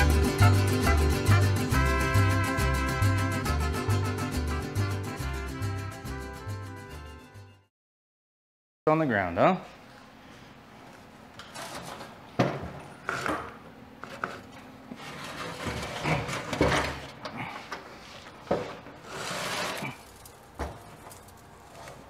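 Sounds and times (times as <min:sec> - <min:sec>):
steel platform scraping: 0:14.0 - 0:17.2, 0:18.6 - 0:22.0.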